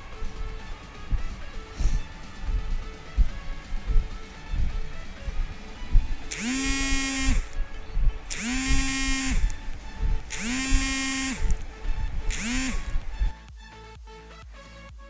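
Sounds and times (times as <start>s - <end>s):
background music: 0.0s - 15.0s
mobile phone vibrating: 1.0s - 13.4s.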